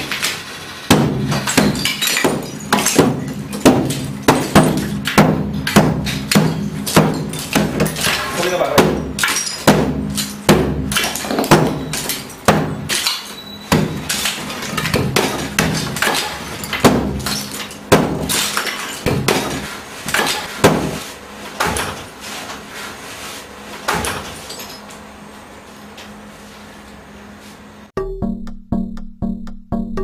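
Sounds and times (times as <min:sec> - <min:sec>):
plaster and rubble falling: 0:00.0 - 0:22.1
blows breaking brick wall: 0:00.0 - 0:22.2.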